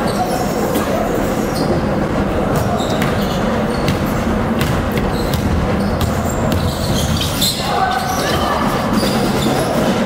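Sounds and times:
busy gym hall noise: 0.0 - 10.0
sneakers squeaking on court: 2.5 - 9.6
basketball bouncing: 2.6 - 7.4.

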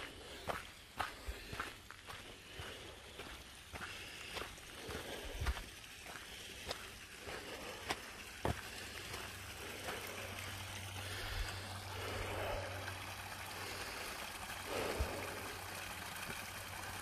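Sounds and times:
footsteps: 0.0 - 12.7
creek water trickling: 0.0 - 17.0.

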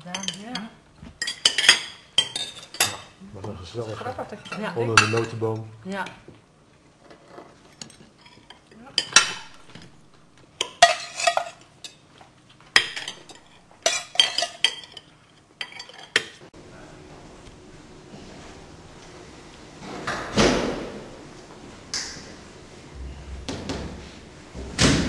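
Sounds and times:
cutlery clinking on plates: 0.1 - 3.2, 4.4 - 5.7, 7.2 - 9.9, 10.6 - 12.0, 12.7 - 16.4
faint hum: 16.5 - 25.0.

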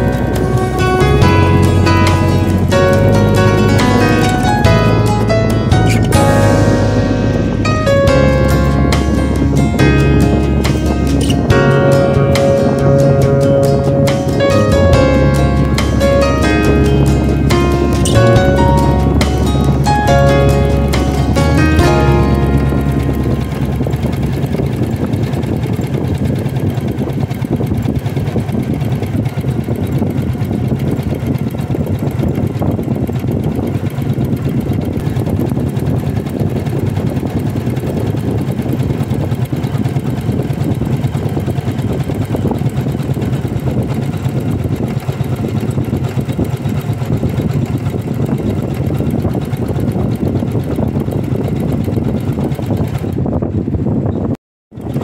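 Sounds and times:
embroidery machine stitching: 20.6 - 53.2.

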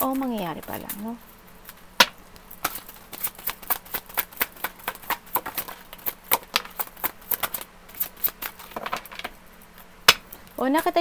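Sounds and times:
cards being shuffled: 0.0 - 11.0.

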